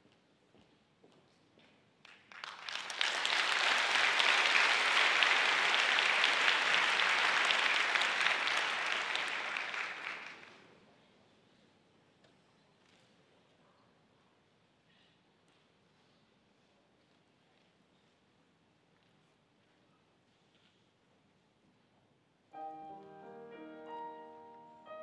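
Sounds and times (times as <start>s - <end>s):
audience applause: 2.3s - 10.6s.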